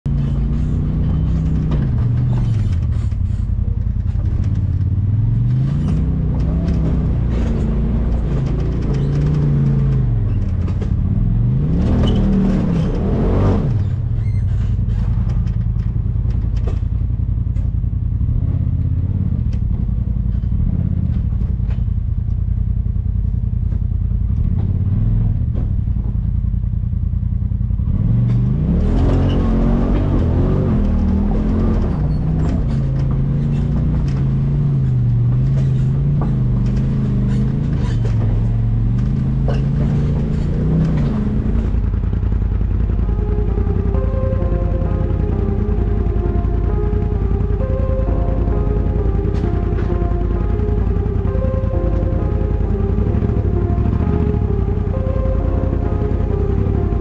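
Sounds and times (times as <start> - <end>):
engine revving: 0.0 - 15.6, 27.7 - 57.0
clattering knocks: 0.1 - 11.2, 29.9 - 53.4.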